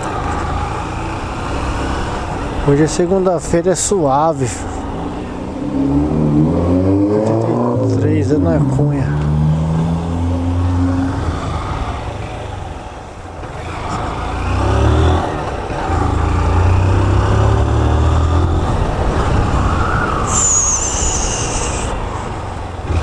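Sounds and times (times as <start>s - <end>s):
motorcycle engine: 0.0s - 3.2s, 4.6s - 23.0s
high wavering whistle: 20.0s - 21.9s.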